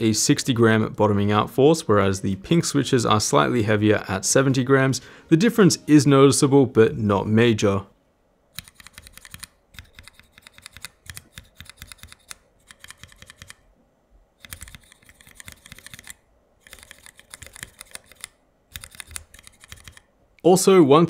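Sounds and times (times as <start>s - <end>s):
mechanical keyboard typing: 8.6s - 13.6s, 14.4s - 20.1s.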